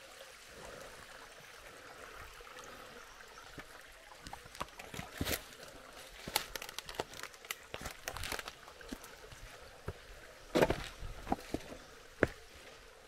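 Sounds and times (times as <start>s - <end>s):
faint creek flowing: 0.0s - 13.0s
footsteps on a dirt track: 7.7s - 12.5s.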